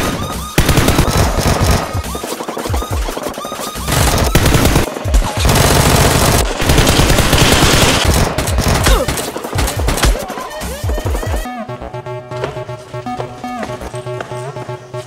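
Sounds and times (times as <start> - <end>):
rapid automatic gunfire: 0.0 - 10.2
background music: 0.0 - 15.0.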